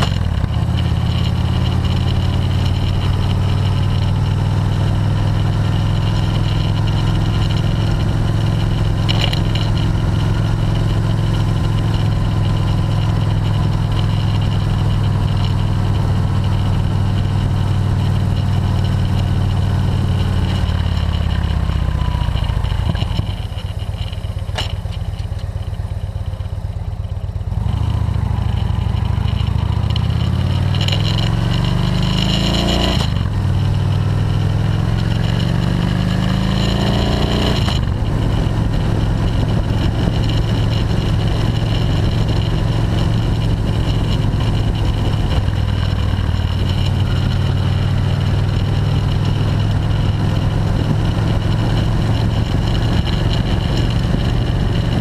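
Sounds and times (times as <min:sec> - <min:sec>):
motorcycle engine drone: 0:00.0 - 0:55.0
wind rush on microphone: 0:37.4 - 0:55.0.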